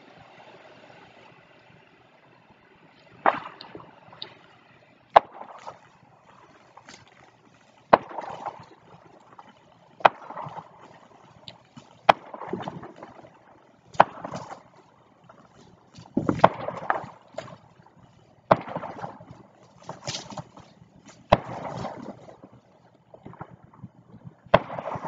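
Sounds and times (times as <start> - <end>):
firework cracks: 3.2 - 4.4, 5.1 - 10.8, 11.5 - 14.7, 16.2 - 17.6, 18.5 - 22.4, 24.5 - 25.0.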